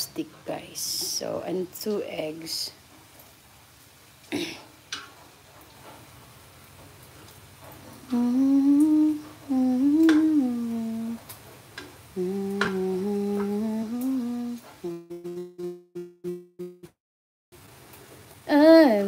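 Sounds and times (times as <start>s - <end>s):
person humming: 8.0s - 11.2s, 12.2s - 16.8s.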